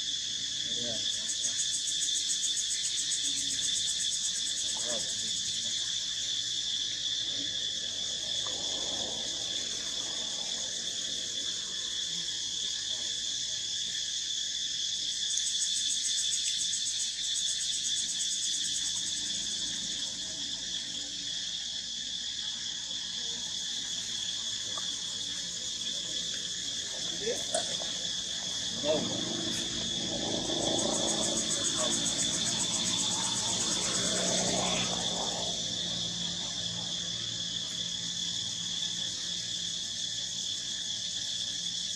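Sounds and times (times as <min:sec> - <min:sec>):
high-pitched insect chorus: 0:00.0 - 0:41.9
fast pulsing insect layer: 0:23.6 - 0:41.9.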